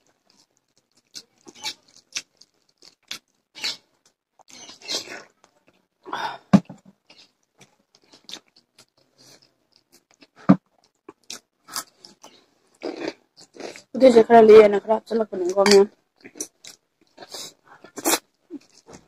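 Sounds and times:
close-up chewing: 0.0s - 3.7s.

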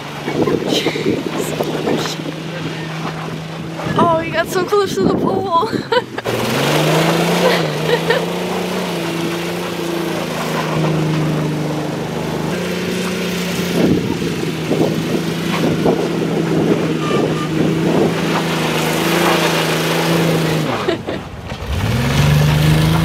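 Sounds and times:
engine revving high: 6.1s - 23.0s
rough crackling noise: 6.2s - 23.0s.

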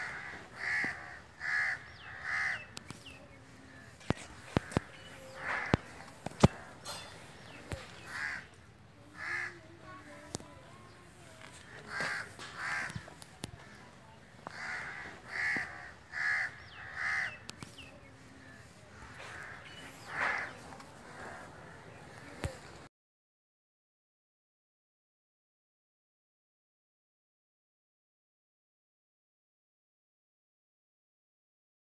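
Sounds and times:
crows cawing: 0.0s - 2.8s, 3.7s - 7.0s, 7.7s - 10.2s, 11.4s - 17.6s, 18.4s - 22.6s.

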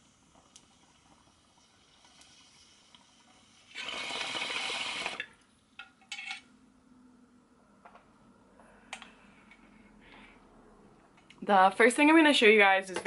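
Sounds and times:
water bubbling in a bong: 0.0s - 5.3s.

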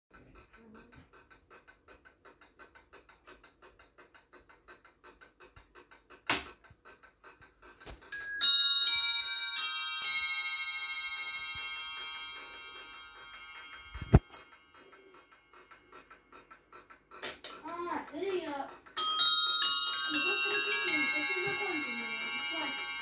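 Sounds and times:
clock ticking: 0.1s - 8.2s, 10.8s - 23.0s
clock bells chiming: 8.1s - 15.5s, 19.0s - 23.0s.

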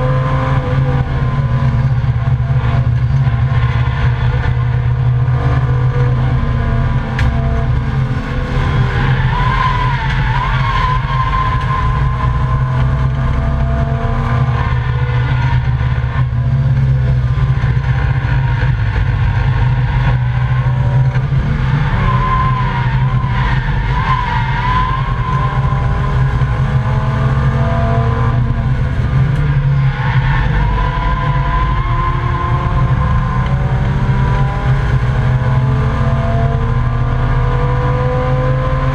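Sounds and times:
tyre squeal: 0.0s - 27.9s
race car engine running hard: 0.0s - 38.9s.

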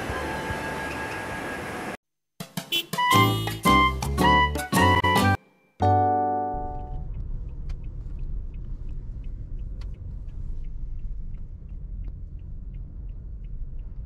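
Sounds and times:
van road and engine rumble: 0.0s - 2.0s, 5.9s - 14.0s
held musical chord: 3.1s - 7.0s.

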